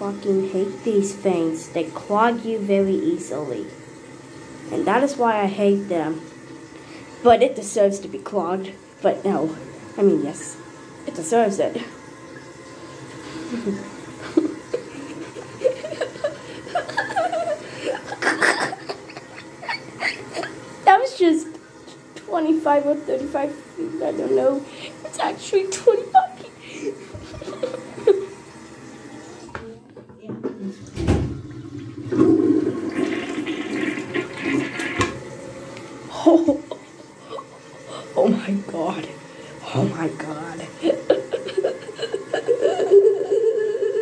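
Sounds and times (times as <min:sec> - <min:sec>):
toilet flushing: 0:00.0 - 0:44.0
person chuckling and laughing: 0:13.4 - 0:20.6, 0:26.7 - 0:28.3, 0:36.1 - 0:38.1, 0:40.8 - 0:44.0.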